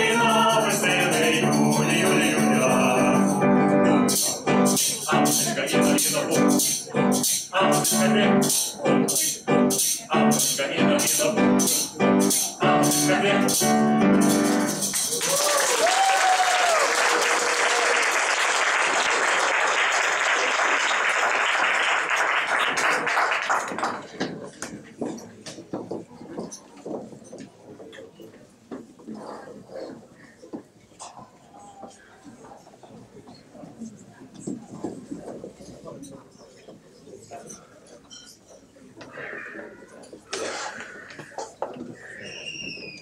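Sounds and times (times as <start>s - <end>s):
live song with steady beat: 0.0s - 15.9s
audience applause: 15.1s - 24.2s.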